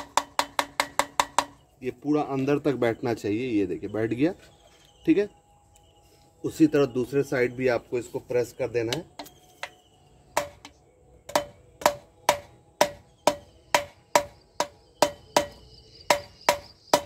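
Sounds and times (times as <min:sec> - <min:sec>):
light knocks with metallic ring: 0:00.0 - 0:01.6, 0:10.4 - 0:17.0.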